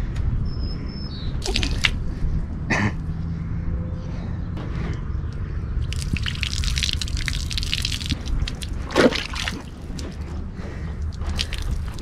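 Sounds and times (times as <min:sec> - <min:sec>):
water dripping: 0:01.4 - 0:02.0, 0:05.8 - 0:10.2, 0:11.1 - 0:12.0
water sloshing: 0:01.4 - 0:02.0, 0:05.8 - 0:10.4, 0:11.1 - 0:12.0
water splattering on asphalt: 0:01.4 - 0:02.0, 0:05.8 - 0:10.2, 0:11.1 - 0:12.0.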